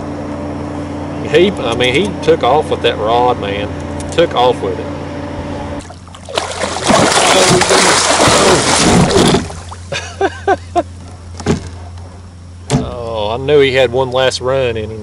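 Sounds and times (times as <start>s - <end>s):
fish splashing at water surface: 5.8s - 9.9s.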